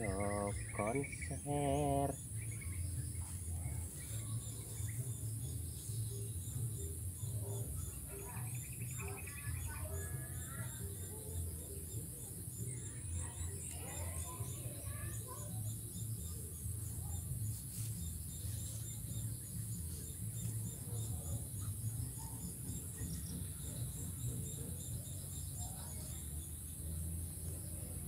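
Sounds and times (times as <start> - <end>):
continuous high buzz: 0.0 - 28.0
insects chirping: 0.0 - 28.0.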